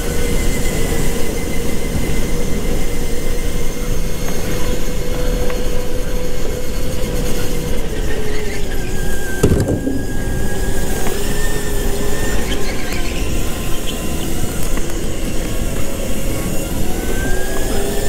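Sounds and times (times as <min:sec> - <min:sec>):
go-kart motor whine: 0:00.0 - 0:18.0
brief knock: 0:09.4 - 0:10.3.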